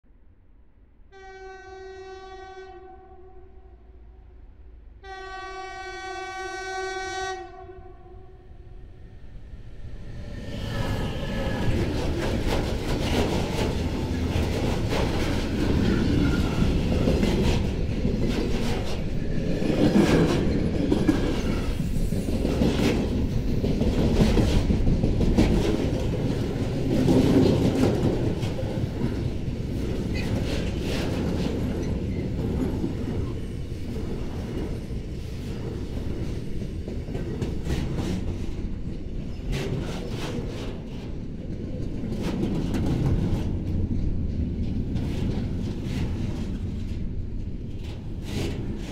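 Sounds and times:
freight train wheels rumbling: 0:03.9 - 0:48.9
wheels clacking over rail joints: 0:10.0 - 0:48.9.

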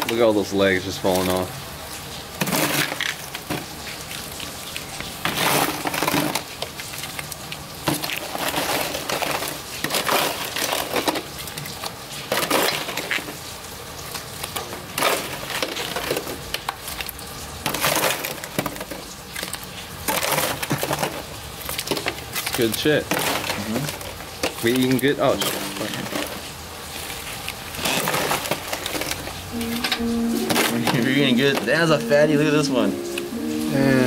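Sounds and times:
shells cracking and crunching: 0:02.4 - 0:29.5.

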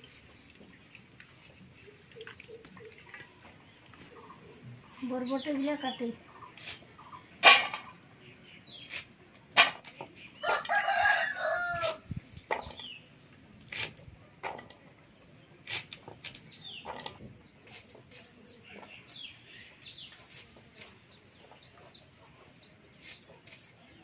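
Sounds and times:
beans being sliced: 0:08.8 - 0:10.0, 0:13.7 - 0:14.0, 0:15.6 - 0:16.4
rooster crowing: 0:10.4 - 0:12.0.

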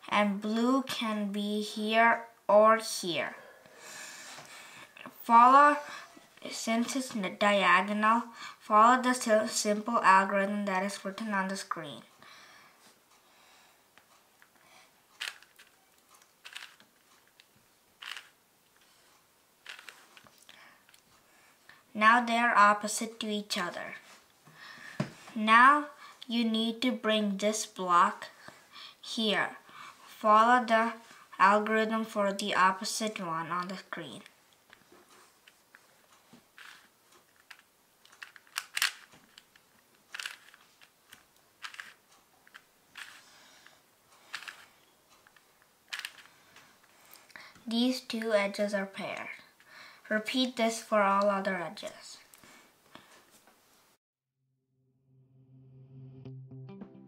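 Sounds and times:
plastic puzzle cube turning clicks: 0:15.2 - 0:18.4, 0:19.6 - 0:21.0, 0:36.6 - 0:43.3, 0:44.2 - 0:46.4.

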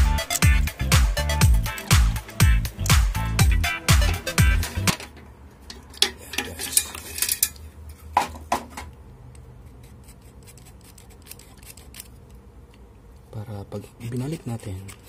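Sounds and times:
metal clinking and clattering: 0:05.7 - 0:07.6.

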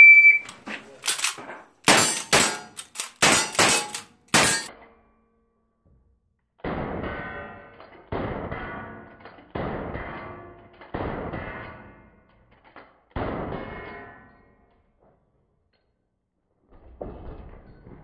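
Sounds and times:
rifle shots hitting steel targets: 0:01.2 - 0:04.8.

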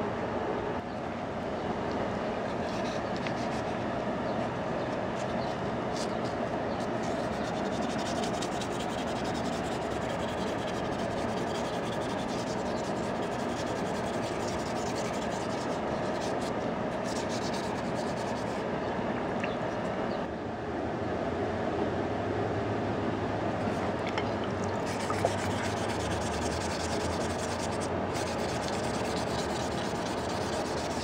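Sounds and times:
wet sanding scratchy rubbing: 0:02.5 - 0:03.8, 0:05.2 - 0:18.6, 0:24.6 - 0:31.0
water running into bowl: 0:23.8 - 0:25.7.

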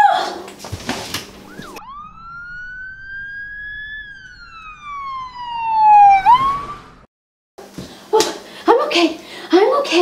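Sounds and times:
emergency vehicle siren wailing: 0:01.4 - 0:07.1.

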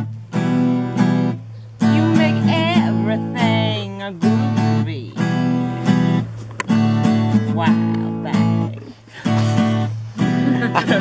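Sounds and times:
acoustic guitar strumming chords: 0:00.0 - 0:11.0
person singing: 0:01.8 - 0:05.4.

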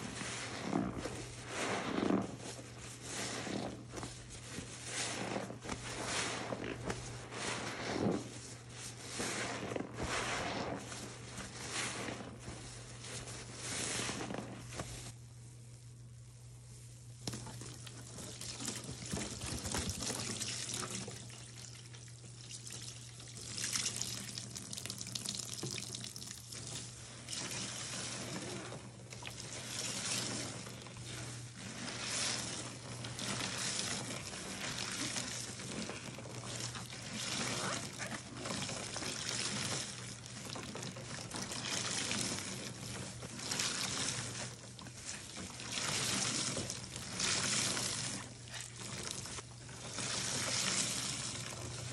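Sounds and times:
water squeezed from sponge: 0:00.0 - 0:15.2, 0:17.2 - 0:51.9
water splashing into tub: 0:17.2 - 0:30.9.

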